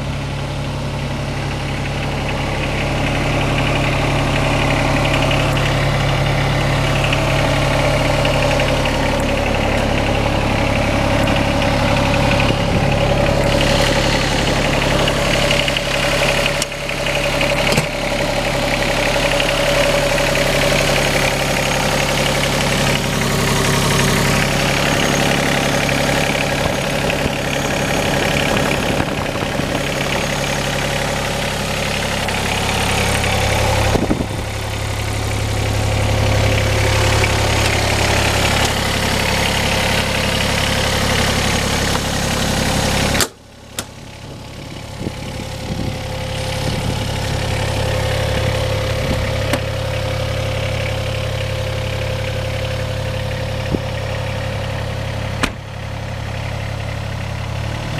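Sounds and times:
diesel engine idling: 0:00.0 - 0:57.9.

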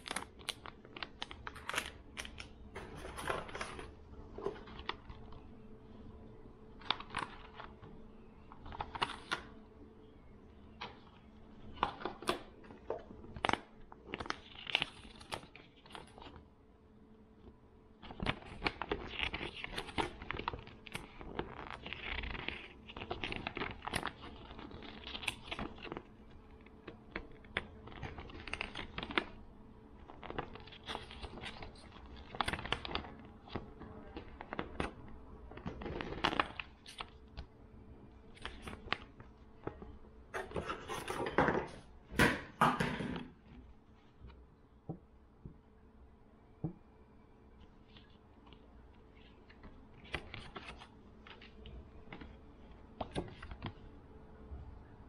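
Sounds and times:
paper leaflet rustling: 0:00.0 - 0:05.5, 0:08.5 - 0:09.6, 0:18.0 - 0:29.4, 0:30.0 - 0:37.5, 0:47.6 - 0:53.9
plastic pouch crinkling: 0:00.0 - 0:05.6, 0:10.8 - 0:16.4, 0:18.0 - 0:37.5, 0:38.2 - 0:40.0, 0:47.6 - 0:53.9.

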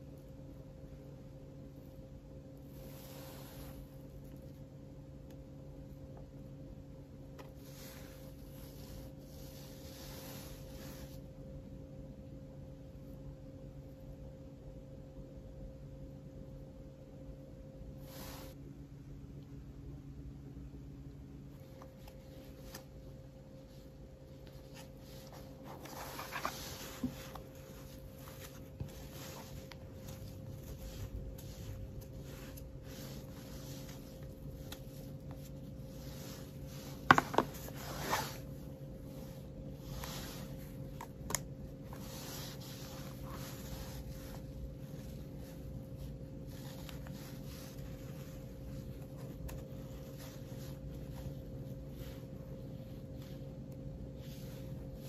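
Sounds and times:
scratchy rustle: 0:23.6 - 0:55.0.

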